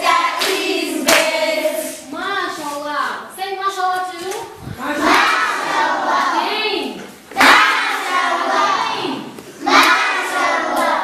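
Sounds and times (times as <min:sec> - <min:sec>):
children chanting: 0:00.0 - 0:02.0, 0:04.8 - 0:11.0
hand clapping: 0:00.3 - 0:01.4.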